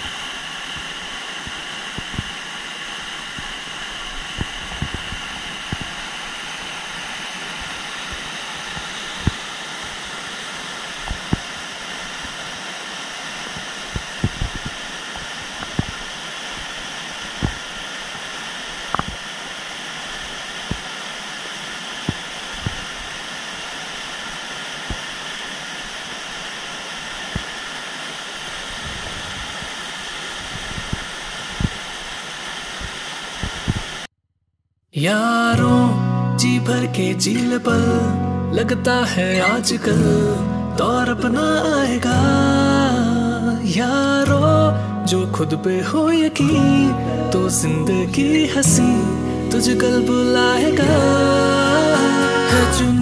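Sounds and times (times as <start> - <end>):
waterfall rushing: 0.0 - 34.1, 45.8 - 53.0.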